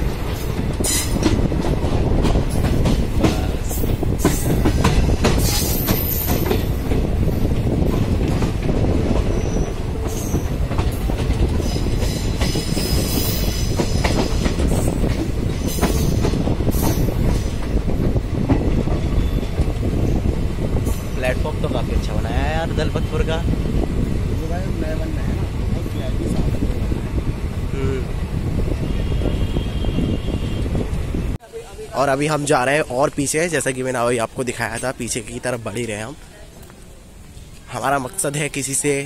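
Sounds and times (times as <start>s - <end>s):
train coach rumble: 0.0s - 31.8s
high metallic wheel squeals: 9.3s - 10.5s.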